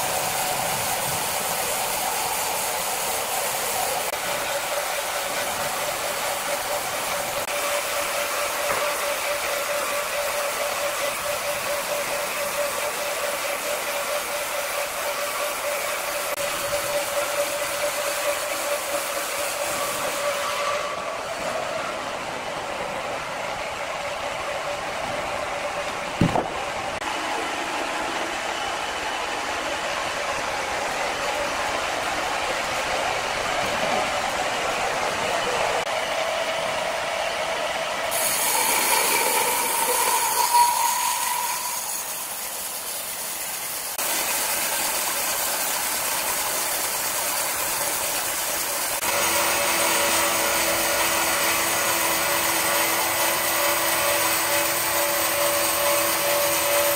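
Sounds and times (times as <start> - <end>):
band sawmill cutting log: 0.0 - 56.9
sharp knock: 26.2 - 26.6.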